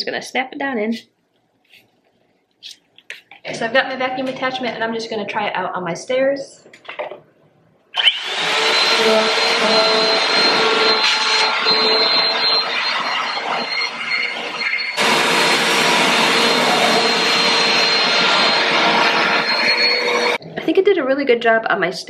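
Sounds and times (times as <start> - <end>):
vacuum cleaner running: 8.0 - 20.4
high whine: 8.1 - 20.4.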